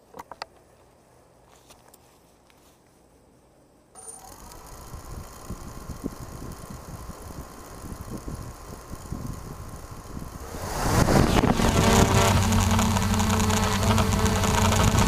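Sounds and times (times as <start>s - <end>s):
quadcopter propellers whining: 4.0s - 15.0s
prop wash buffeting microphone: 5.0s - 15.0s.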